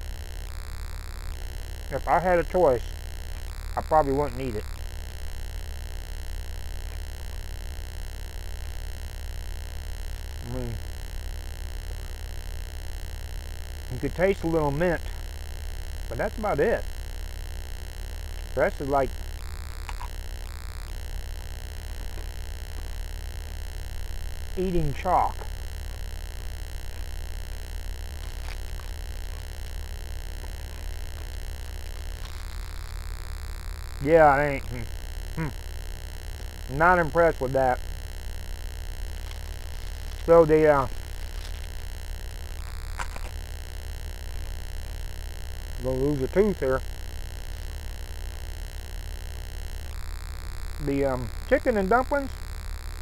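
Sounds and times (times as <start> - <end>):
low hum: 0.0 - 53.0
chewing crunches: 19.8 - 20.2, 25.4 - 32.9, 42.9 - 43.4
man humming hm: 34.6 - 35.6.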